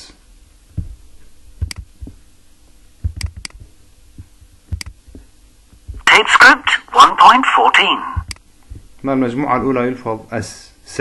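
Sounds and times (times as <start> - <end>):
computer mouse clicking: 1.6 - 1.9, 3.2 - 3.6, 4.8 - 5.0.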